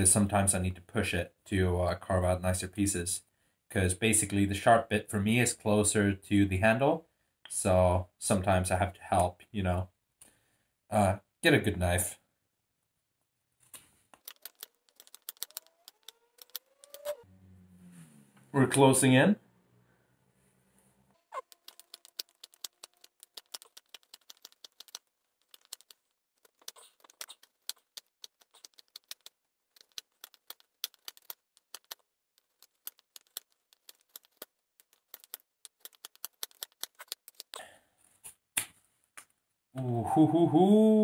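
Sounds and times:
wood cracking: 0:14.1 - 0:17.2, 0:21.4 - 0:37.6
knife whittling wood: 0:14.2 - 0:17.2, 0:21.3 - 0:37.5.

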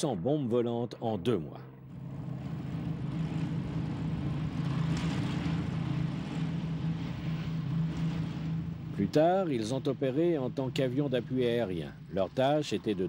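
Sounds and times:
propeller aircraft engines droning: 0:00.0 - 0:13.0.

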